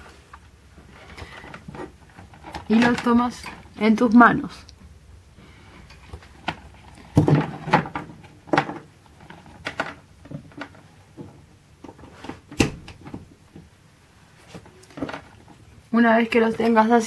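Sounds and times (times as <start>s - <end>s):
knocks and clicks of handling: 5.8s - 13.8s, 14.4s - 15.6s.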